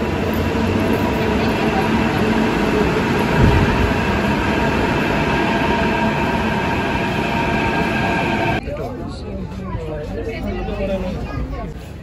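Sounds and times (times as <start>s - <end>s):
electric train whine: 0.0s - 8.6s
wheels rumbling on rails: 0.0s - 9.4s
low thump: 3.3s - 4.3s.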